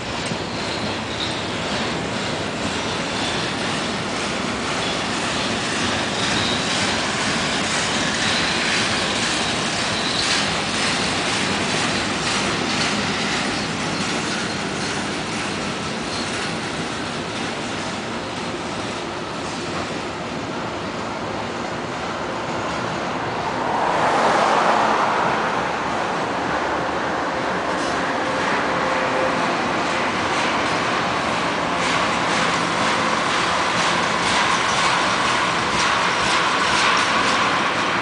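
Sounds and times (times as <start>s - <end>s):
high wheel squeal: 0.0s - 17.9s
train wheels rumbling on rails: 0.0s - 38.0s.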